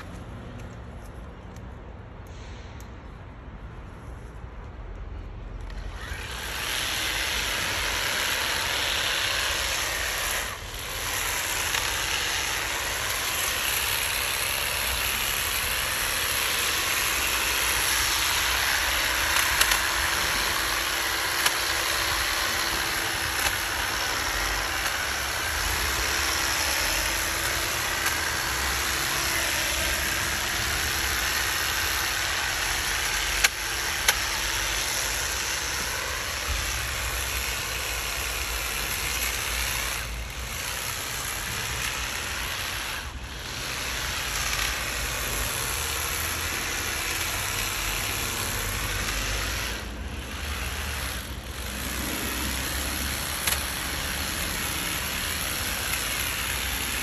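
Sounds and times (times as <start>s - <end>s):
hedge trimmer running: 5.7s - 57.0s
sharp clicks: 19.2s - 20.2s.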